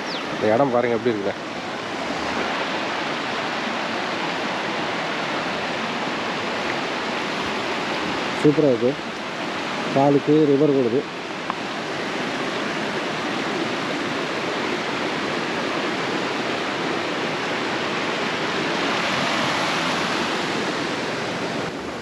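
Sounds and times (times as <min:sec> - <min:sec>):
river water rushing: 0:00.0 - 0:22.0.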